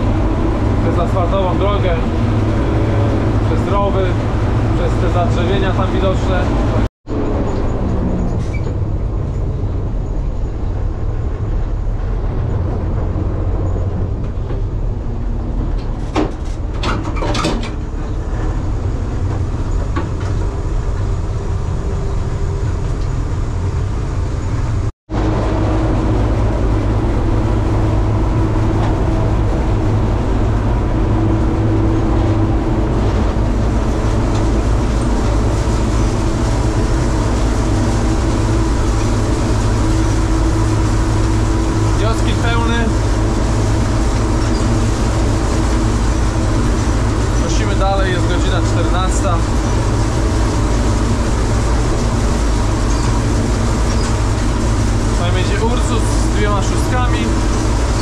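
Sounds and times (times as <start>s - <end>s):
diesel farm machinery running: 0.0s - 58.0s.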